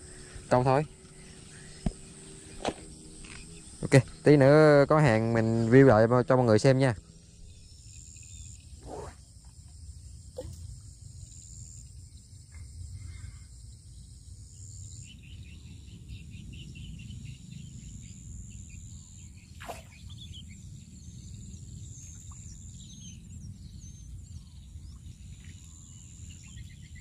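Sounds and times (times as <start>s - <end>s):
birds chirping: 0.0s - 9.2s
insects buzzing: 0.0s - 27.0s.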